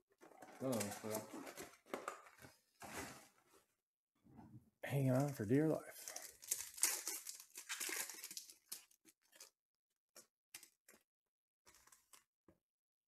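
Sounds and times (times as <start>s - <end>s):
cards rustling: 0.3s - 2.5s, 5.1s - 9.5s
foil wrapper tearing and crinkling: 5.9s - 9.5s.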